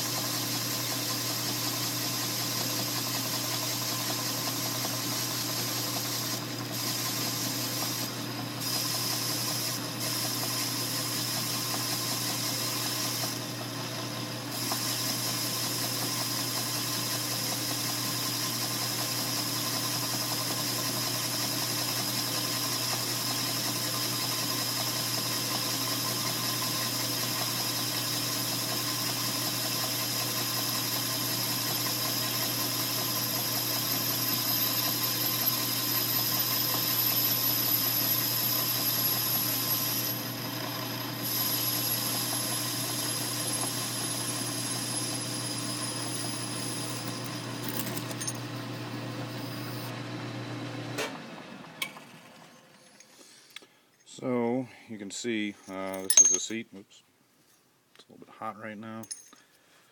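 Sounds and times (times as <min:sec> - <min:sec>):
lathe motor humming: 0:00.0 - 0:50.0.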